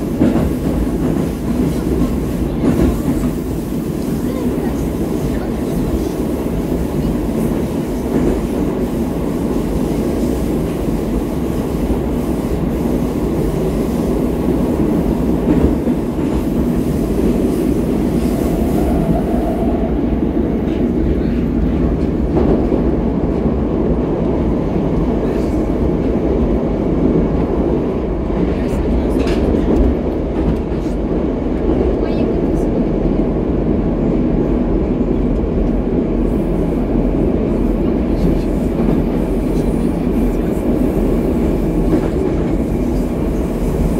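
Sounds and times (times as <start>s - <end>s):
train wheels rumbling on rails: 0.0s - 43.9s.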